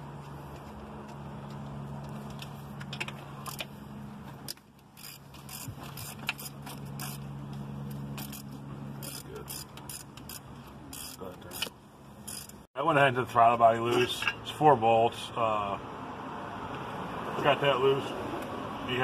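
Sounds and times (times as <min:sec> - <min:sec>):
hand ratchet clicking: 0:04.5 - 0:07.2, 0:08.2 - 0:12.6.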